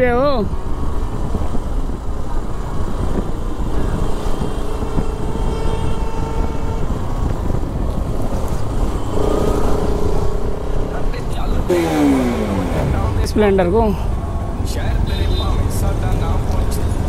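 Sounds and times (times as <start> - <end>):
wind rushing over microphone: 0.0 - 15.0
motorcycle engine running: 7.0 - 14.4.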